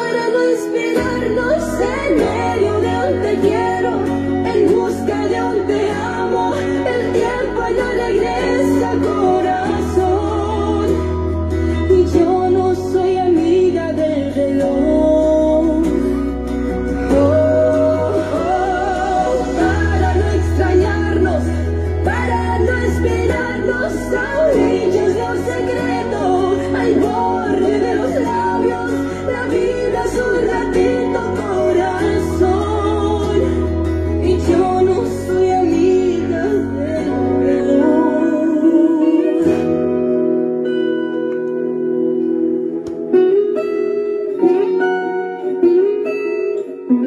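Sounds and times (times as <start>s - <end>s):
person singing long gliding notes: 0.0s - 40.8s
sustained bass notes: 1.0s - 43.5s.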